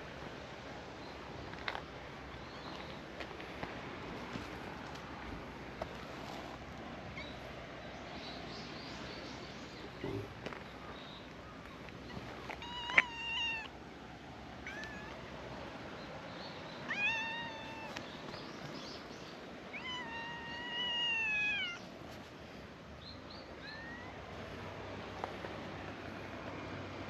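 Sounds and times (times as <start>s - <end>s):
cat meowing: 12.6s - 13.7s, 14.6s - 15.2s, 16.9s - 18.0s, 19.7s - 21.8s.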